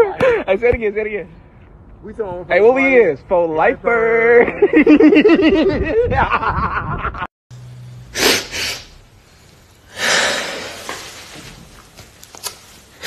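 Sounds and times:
man laughing: 4.3s - 7.3s.

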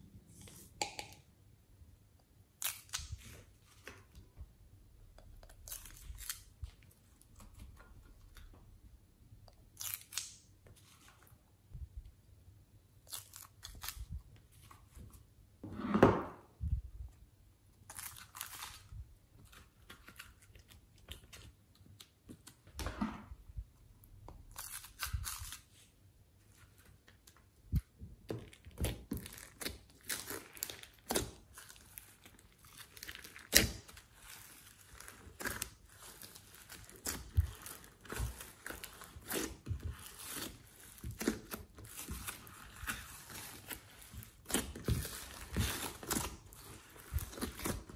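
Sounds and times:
sticky slime being handled: 17.9s - 47.9s
slime peeling: 28.7s - 47.9s.

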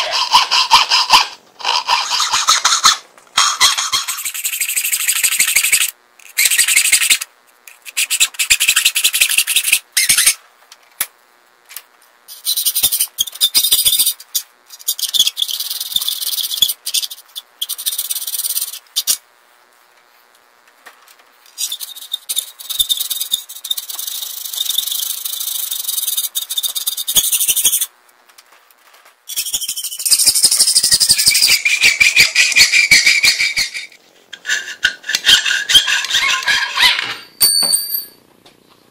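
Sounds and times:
hacksaw cutting metal plate: 0.0s - 4.4s, 31.0s - 37.4s.

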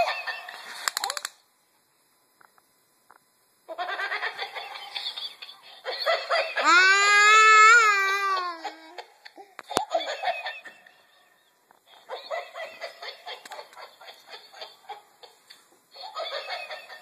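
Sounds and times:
toddler laughing: 4.9s - 10.4s.

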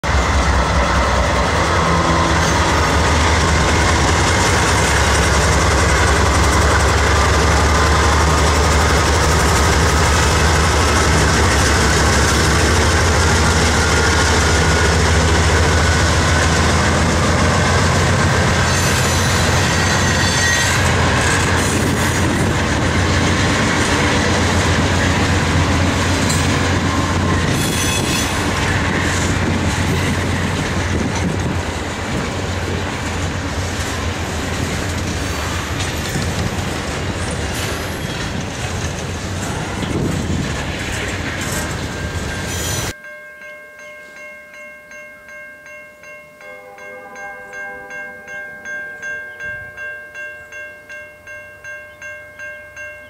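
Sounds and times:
diesel locomotive engine droning: 0.0s - 43.0s
train wheels clattering on rails: 0.0s - 43.0s
wheel squeal: 18.6s - 22.5s, 26.3s - 29.2s, 41.4s - 42.9s.

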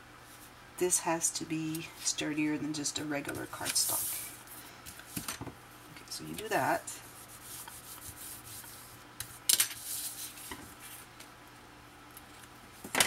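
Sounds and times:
paper rubbing on cutting mat: 3.6s - 4.4s, 6.4s - 9.0s, 9.8s - 11.0s.

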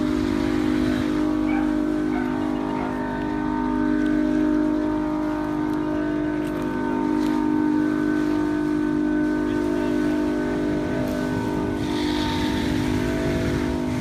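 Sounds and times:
boat motor droning: 0.0s - 14.0s
hiss of water jet: 11.2s - 14.0s.

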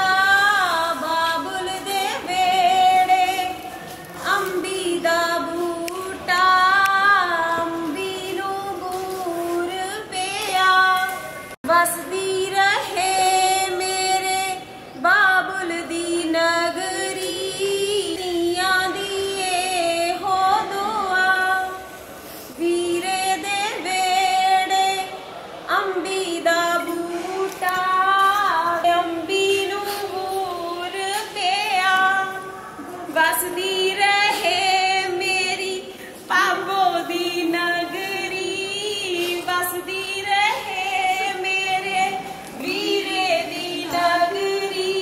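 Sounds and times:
woman singing ornamented notes: 22.6s - 45.0s.

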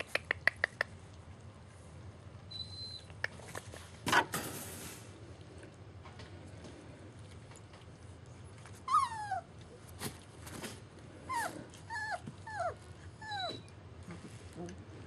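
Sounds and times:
puppy whining and yelping: 2.4s - 3.5s, 8.2s - 10.0s, 11.2s - 14.2s.

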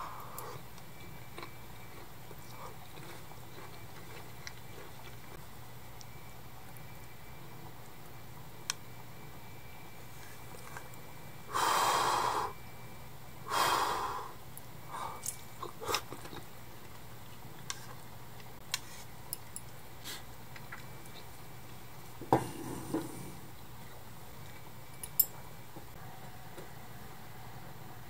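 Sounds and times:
person blowing on food: 11.5s - 12.6s.

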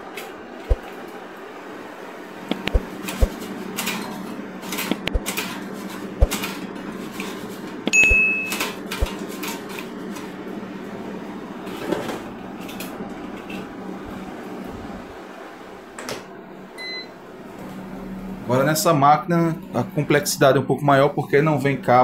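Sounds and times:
air fryer fan hum: 0.0s - 22.0s
short electronic beep: 7.9s - 8.6s.

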